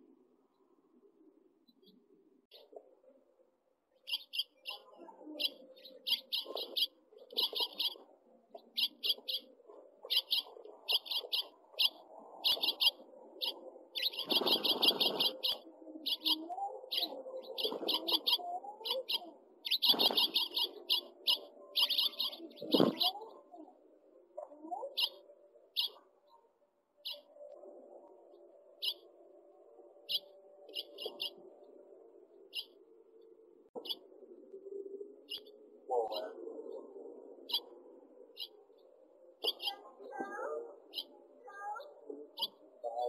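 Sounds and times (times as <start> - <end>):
finches chirping: 4.0 - 23.7, 24.4 - 26.4, 27.0 - 29.2, 29.8 - 31.9, 32.5 - 32.8, 33.8 - 36.8, 37.4 - 43.0
wings fluttering: 14.0 - 15.6, 19.7 - 21.1, 22.6 - 23.2.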